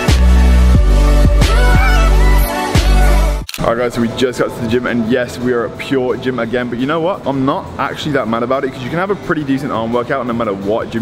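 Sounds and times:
music with heavy bass and beat: 0:00.0 - 0:03.4.

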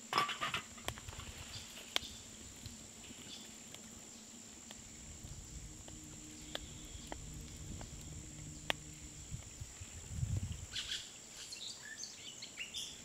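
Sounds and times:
wood fire crackling: 0:00.4 - 0:11.3
soft low rumble: 0:00.8 - 0:10.9.

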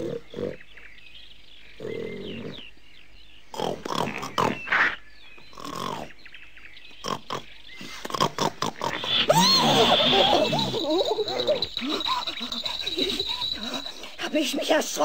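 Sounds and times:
cartoon boar grunting and snorting: 0:03.5 - 0:04.7, 0:05.5 - 0:06.1, 0:07.0 - 0:15.0
wavering cries: 0:07.9 - 0:15.0
thin high tone: 0:09.0 - 0:15.0.

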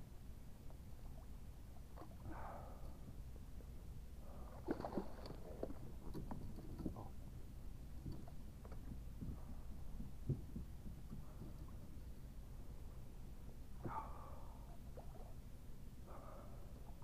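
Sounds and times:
low steady rumble: 0:00.0 - 0:17.0.

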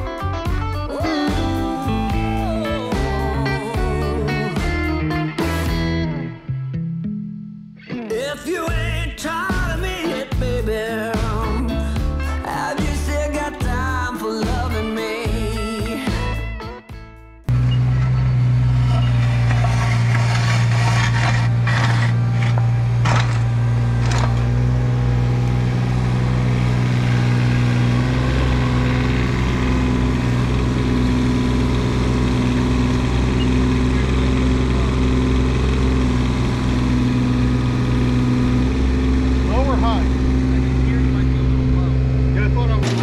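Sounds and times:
excavator diesel engine running: 0:00.9 - 0:05.9, 0:17.5 - 0:43.0.

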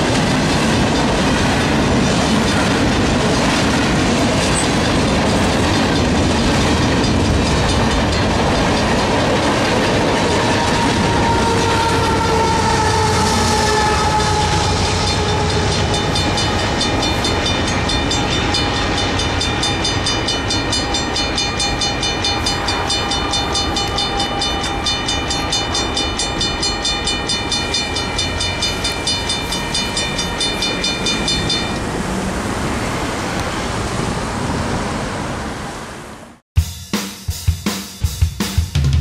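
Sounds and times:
crossing bell ringing: 0:00.0 - 0:03.1, 0:04.6 - 0:32.1
locomotive rumble and whine: 0:00.0 - 0:36.2.

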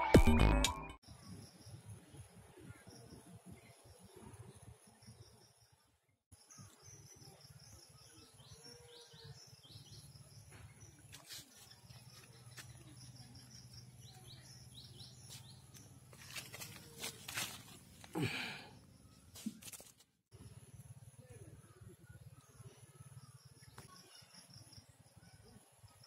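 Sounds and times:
small bird chirping: 0:01.2 - 0:18.0.

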